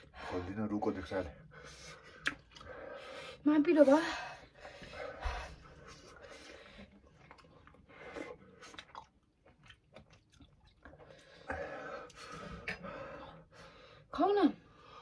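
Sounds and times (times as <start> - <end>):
person chewing noodles: 1.6 - 3.1, 4.8 - 13.4.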